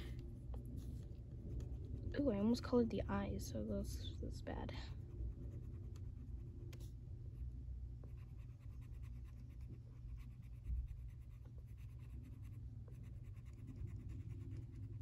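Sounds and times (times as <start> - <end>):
colored pencil scratching on paper: 4.8 - 6.8, 8.0 - 15.0.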